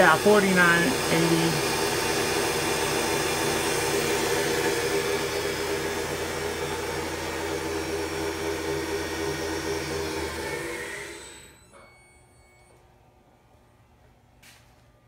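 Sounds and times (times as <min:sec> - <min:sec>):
milling machine motor whirring: 0:00.0 - 0:12.0.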